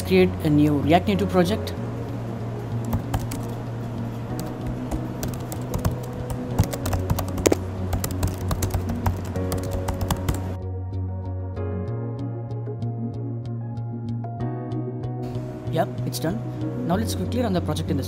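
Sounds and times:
background music with held notes: 0.0 - 18.0
keyboard key clicks: 4.9 - 10.4.

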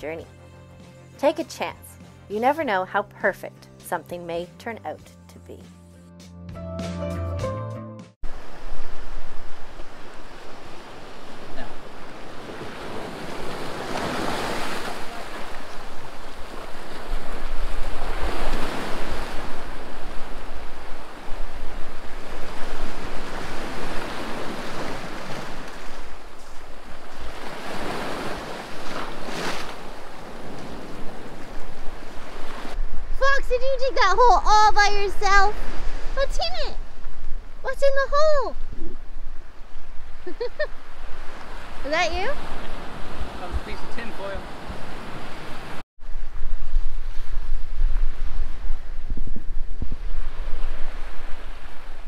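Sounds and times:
music track: 0.0 - 8.2
small waves breaking on shore: 8.3 - 33.0, 35.1 - 37.6, 38.5 - 52.0
wind rumbling on microphone: 8.3 - 52.0.

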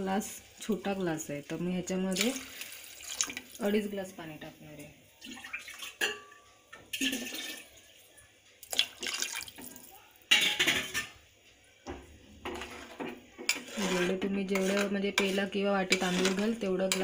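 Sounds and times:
water splashing into a pot: 0.4 - 3.8, 5.1 - 6.2, 6.9 - 11.1.

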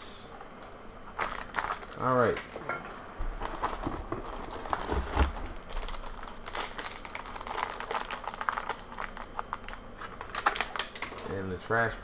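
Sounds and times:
foil wrapper crinkling and tearing: 1.2 - 2.4, 3.4 - 11.4.

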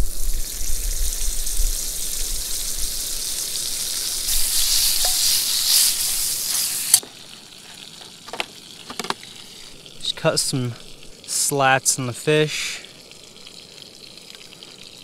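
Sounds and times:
butter sizzling in a pan: 0.0 - 9.9.

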